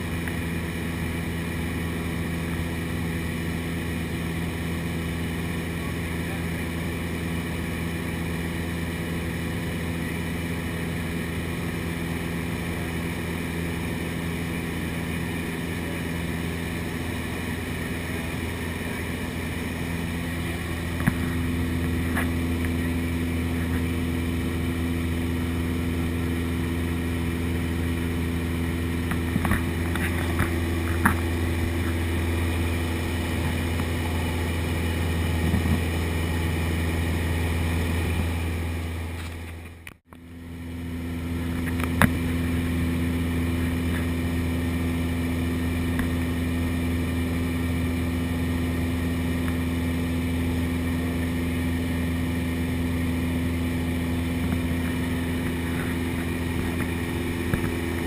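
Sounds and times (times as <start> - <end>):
light plane engine drone in cabin: 0.0 - 58.0.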